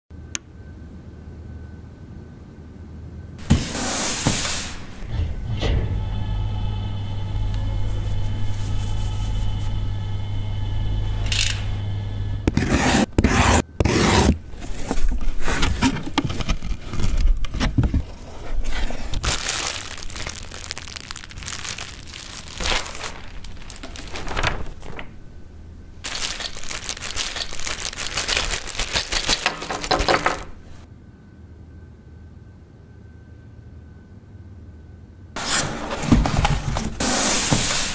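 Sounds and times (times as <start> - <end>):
steady hum: 0.2 - 35.3
cardboard and packing rustling: 7.7 - 9.8, 12.5 - 30.8, 35.4 - 37.9.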